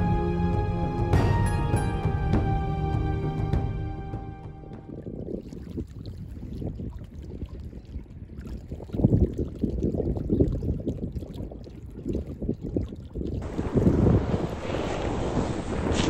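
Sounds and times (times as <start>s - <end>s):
wind buffeting microphone: 4.6s - 16.0s.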